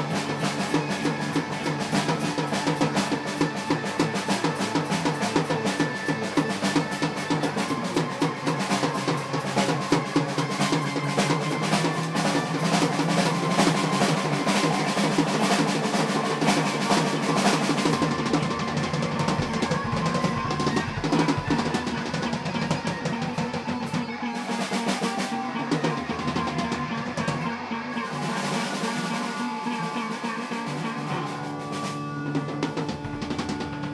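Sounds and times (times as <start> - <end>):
drum kit playing busily: 0.0 - 33.9.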